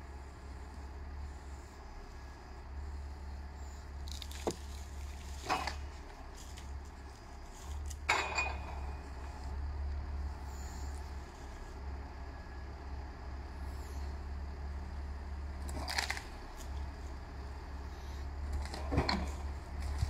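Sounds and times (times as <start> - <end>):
tractor diesel engine running: 0.0 - 20.0
branches cracking and clattering: 4.0 - 8.1, 15.6 - 17.0, 18.4 - 20.0.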